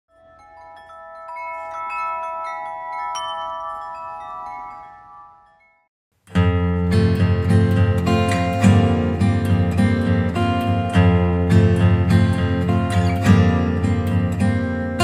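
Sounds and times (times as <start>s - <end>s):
chimes ringing: 0.1s - 5.9s
acoustic guitar music: 6.2s - 15.0s.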